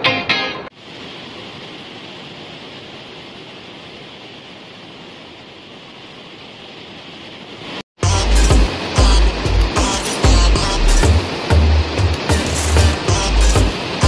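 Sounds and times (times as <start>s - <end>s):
rushing rocky stream: 0.8s - 14.0s
loud music with heavy bass: 8.0s - 14.0s.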